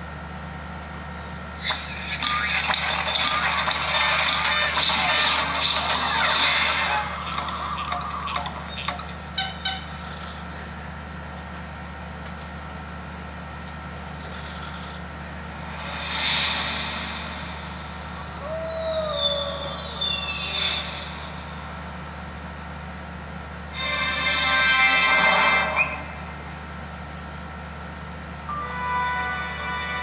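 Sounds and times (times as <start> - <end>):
steady low hum: 0.0 - 30.0
soft whoosh: 15.5 - 18.2
shimmering high tones sliding down: 15.5 - 23.0.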